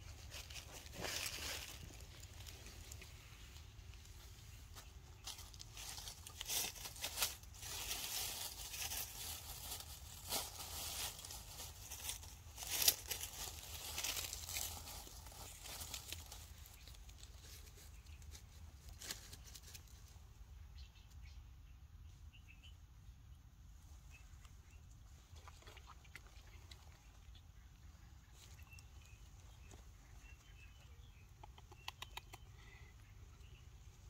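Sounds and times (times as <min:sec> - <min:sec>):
faint rustling and crackling: 0:00.0 - 0:20.2.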